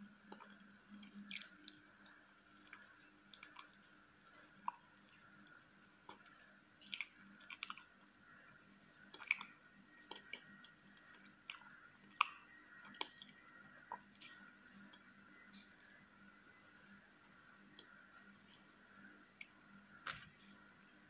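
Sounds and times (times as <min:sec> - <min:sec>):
person chewing cake: 0:00.1 - 0:15.1.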